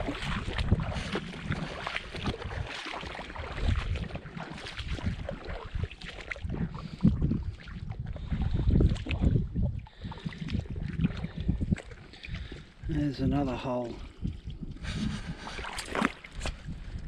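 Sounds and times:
footsteps splashing in water: 0:00.0 - 0:12.9, 0:14.0 - 0:17.0
wind rumble on microphone: 0:00.0 - 0:17.0.

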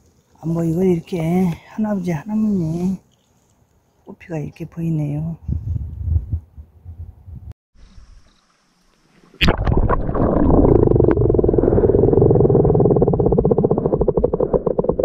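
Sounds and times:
underwater rumble of water: 0:07.8 - 0:15.0.

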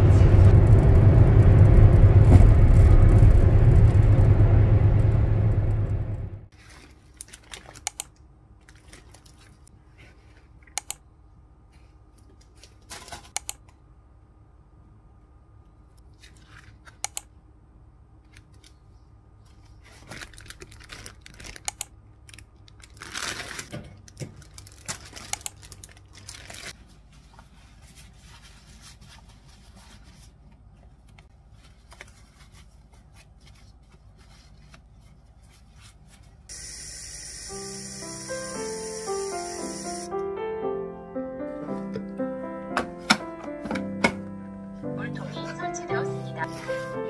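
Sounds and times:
low steady hum: 0:00.0 - 0:40.3
plastic bags crinkling: 0:06.6 - 0:07.8, 0:08.6 - 0:09.6, 0:19.8 - 0:26.8.

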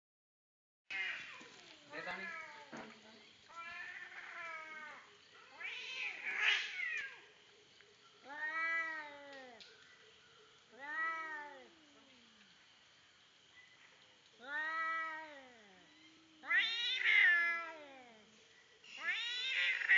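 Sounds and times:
cats fighting and yowling: 0:00.9 - 0:07.4, 0:08.2 - 0:09.8, 0:10.6 - 0:12.4, 0:14.3 - 0:18.3, 0:18.9 - 0:19.9.

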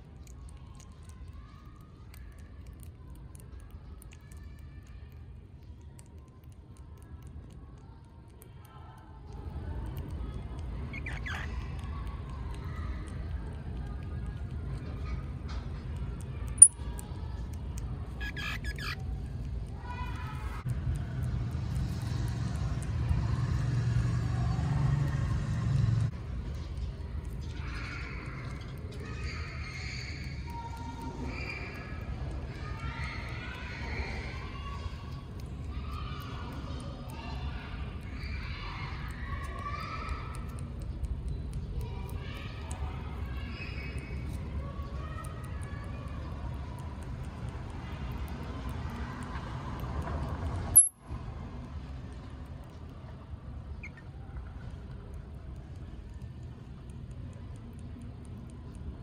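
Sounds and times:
faint indistinct voices: 0:00.0 - 0:59.0
small high clicks: 0:16.0 - 0:19.5, 0:48.6 - 0:51.1
short squeaky calls: 0:18.2 - 0:19.0.

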